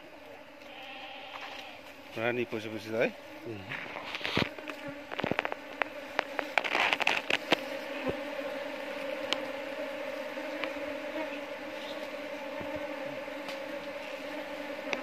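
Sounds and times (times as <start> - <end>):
bees buzzing: 0.0 - 15.0
sharp clicks and crackles: 4.0 - 7.6.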